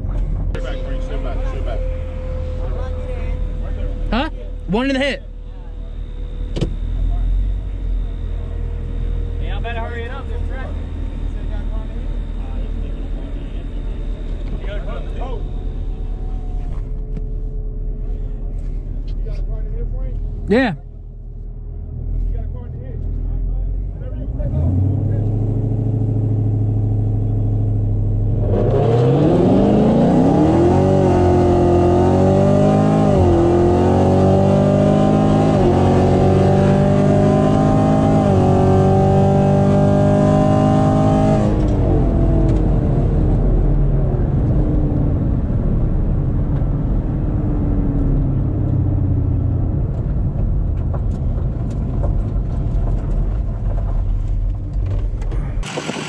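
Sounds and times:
car engine revving through upshifts: 24.3 - 43.5.

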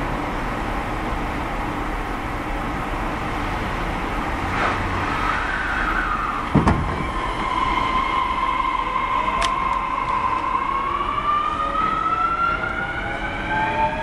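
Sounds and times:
train wheels rumbling on rail: 0.0 - 14.0
train motor whine: 4.2 - 14.0
heavy thump: 6.5 - 7.2.

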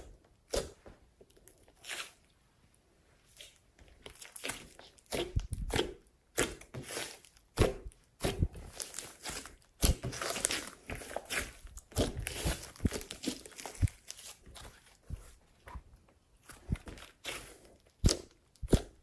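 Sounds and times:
slime squelching and popping: 3.3 - 15.3, 16.4 - 19.0.

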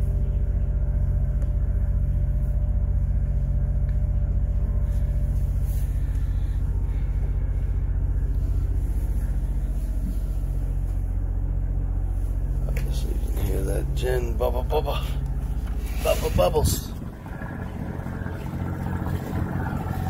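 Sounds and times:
generator humming: 0.0 - 20.0.

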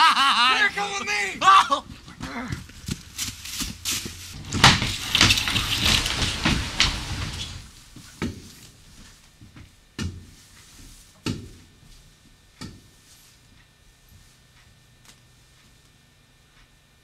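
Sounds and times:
clattering and rustling: 3.0 - 7.8.

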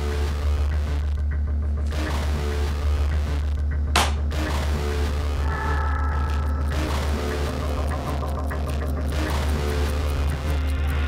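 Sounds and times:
low droning pulse: 3.5 - 11.0
high held chord: 5.3 - 8.7.

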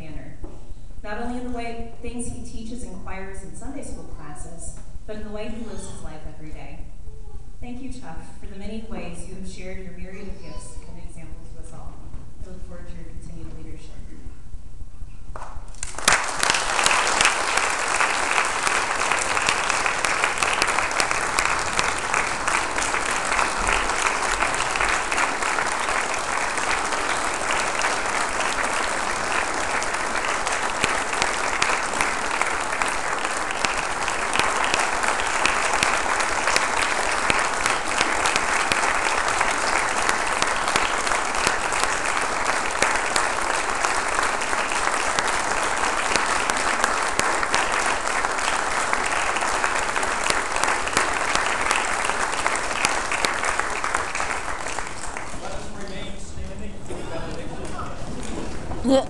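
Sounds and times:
congregation applauding: 15.4 - 59.0.

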